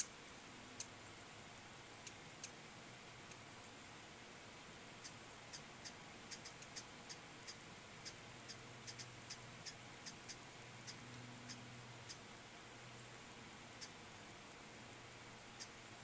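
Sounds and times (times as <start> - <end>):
hummingbird chip calls: 4.9 - 12.4, 13.3 - 14.3, 15.3 - 16.0.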